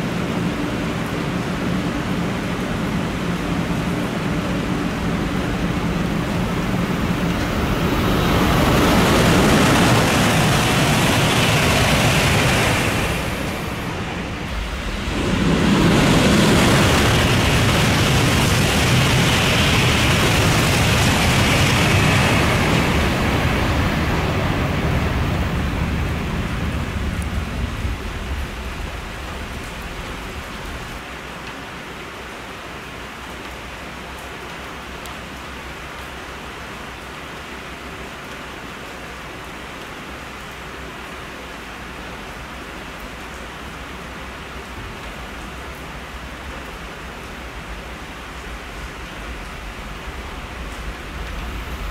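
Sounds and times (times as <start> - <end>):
high-speed trains rushing past: 0.0 - 31.0, 45.2 - 51.9
rain hiss: 0.0 - 51.9.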